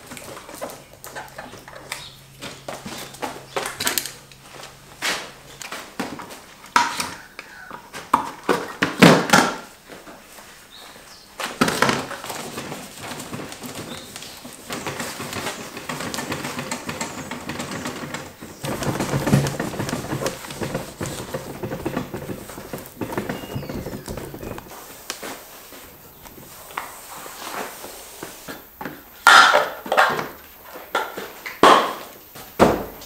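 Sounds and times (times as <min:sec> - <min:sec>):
rubbing and scraping fibreglass: 0:12.0 - 0:28.7.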